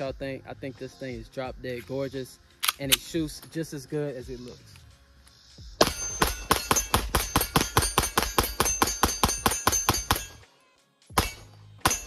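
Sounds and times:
pistol rapid fire: 5.8s - 10.4s, 11.2s - 12.0s.

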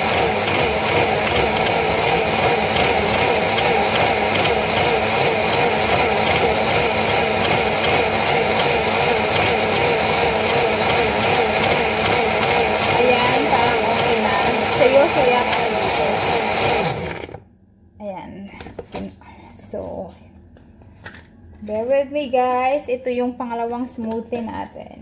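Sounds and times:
blender motor running: 0.0s - 17.4s.

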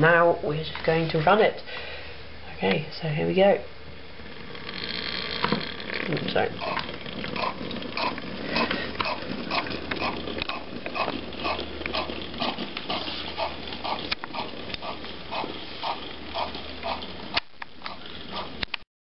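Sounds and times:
small motor humming with grinding pulse: 4.1s - 18.6s.

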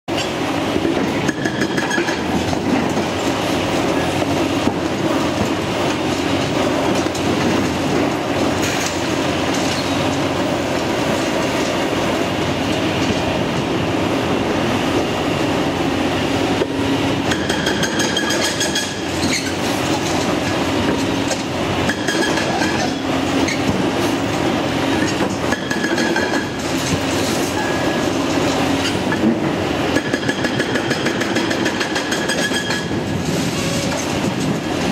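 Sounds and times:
hydraulic breaker hammer pounding concrete: 0.9s - 3.3s, 17.2s - 24.0s, 24.9s - 27.1s, 28.8s - 33.2s.

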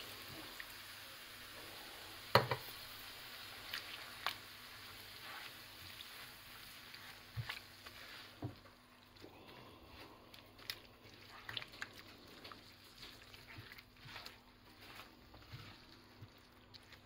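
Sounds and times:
food sizzling in pan: 0.0s - 8.9s
spatula scraping and tapping pan: 2.3s - 2.7s.

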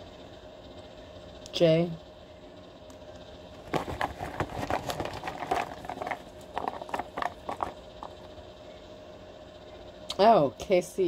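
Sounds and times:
small pieces clicking and clattering: 3.6s - 8.2s.

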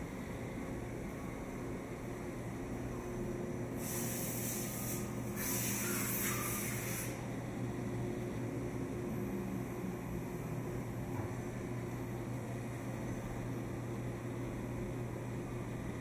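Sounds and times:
machinery hum: 0.0s - 16.0s
high hiss: 3.8s - 7.2s.

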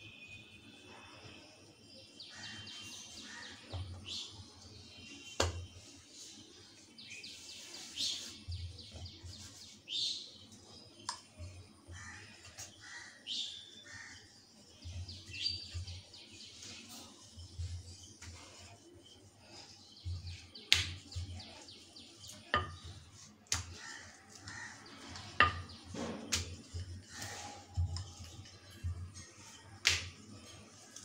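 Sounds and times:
birds chirping: 0.9s - 31.0s.

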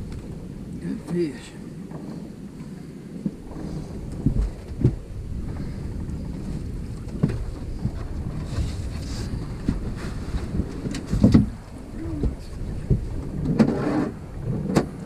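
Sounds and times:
wind buffeting microphone: 0.0s - 15.0s
knocks in a boat: 3.2s - 15.0s.

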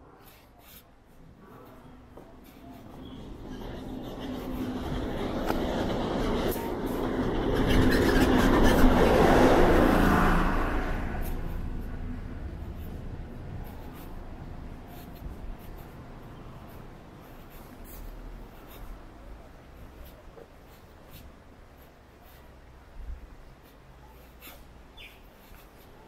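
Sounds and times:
vehicle passing by: 2.4s - 19.0s.

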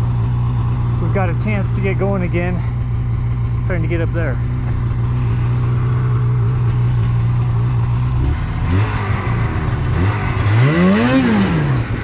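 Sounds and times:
snowmobile engine idling and revving: 0.0s - 12.0s.

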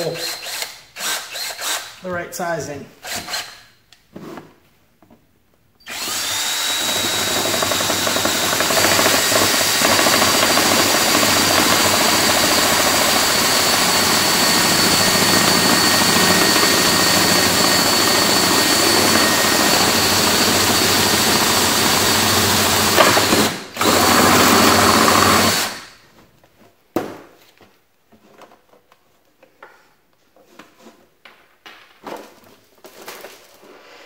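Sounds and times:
power drill drilling plastic: 5.8s - 25.9s.

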